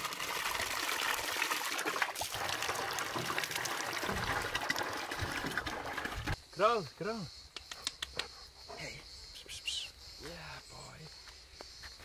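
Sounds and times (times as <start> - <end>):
water pouring into plastic barrel: 0.0 - 6.4.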